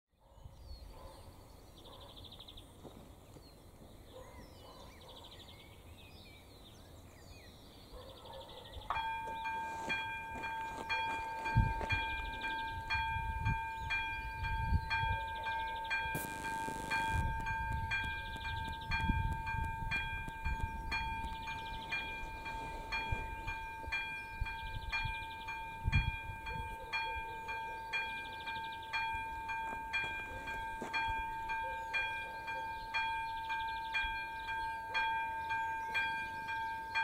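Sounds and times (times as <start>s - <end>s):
birds chirping: 0.2s - 37.0s
level crossing bell ringing: 9.0s - 37.0s.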